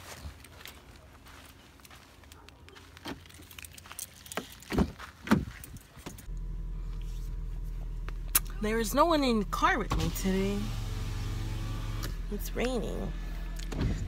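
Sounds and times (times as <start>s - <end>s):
low hum inside car: 6.0s - 14.0s.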